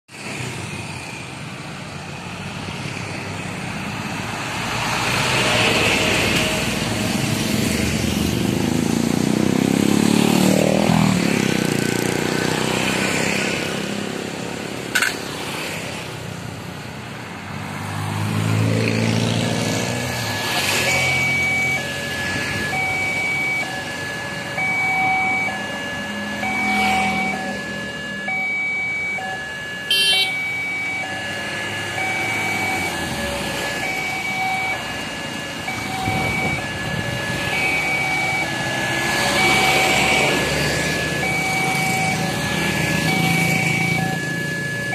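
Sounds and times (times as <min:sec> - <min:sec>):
cars and motorcycles passing: 0:00.1 - 0:44.9
two-tone crossing warning bell: 0:19.0 - 0:44.9
large vehicle passing: 0:30.4 - 0:44.9.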